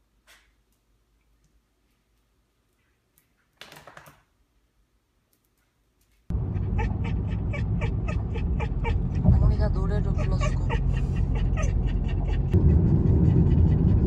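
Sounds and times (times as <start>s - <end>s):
car ride interior noise: 6.3s - 14.0s.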